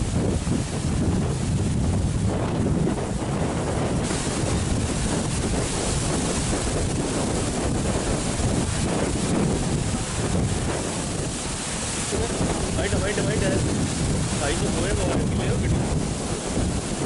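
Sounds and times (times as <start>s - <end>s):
surf crashing and rushing: 0.0s - 17.0s
wind buffeting microphone: 0.0s - 17.0s.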